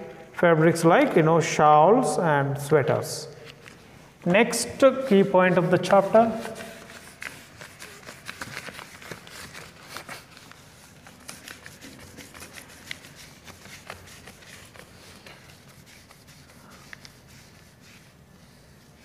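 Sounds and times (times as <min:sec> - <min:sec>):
eraser scrubbing whiteboard: 0:04.4 - 0:19.0.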